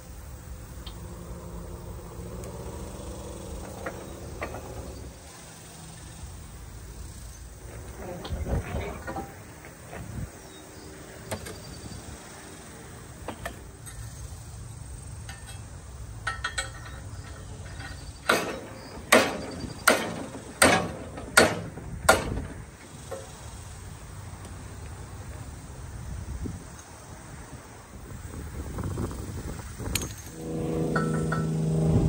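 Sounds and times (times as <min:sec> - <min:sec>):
hammer blows on metal: 0:30.0 - 0:32.0.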